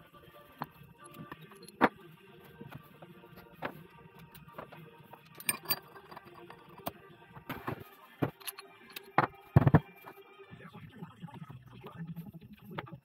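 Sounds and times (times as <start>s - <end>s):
tools clinking on metal parts: 0.6s - 1.9s, 3.4s - 9.9s.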